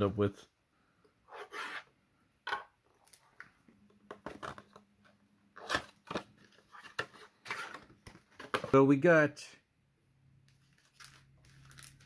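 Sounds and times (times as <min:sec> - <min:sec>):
plastic crinkling and rustling: 0:10.5 - 0:12.0
cardboard and plastic wrap tearing: 0:10.7 - 0:12.0.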